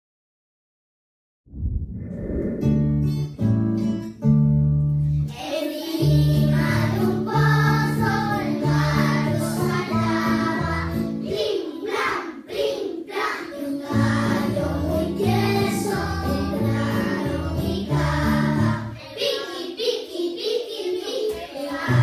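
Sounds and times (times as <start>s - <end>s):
young children singing together: 5.3s - 22.0s.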